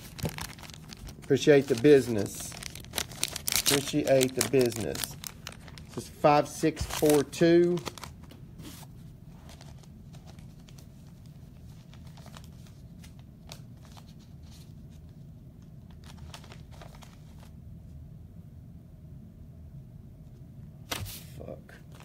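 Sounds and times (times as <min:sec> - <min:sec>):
foil wrappers crinkling: 0:00.0 - 0:08.4, 0:09.4 - 0:14.1
steady low hum: 0:00.0 - 0:22.0.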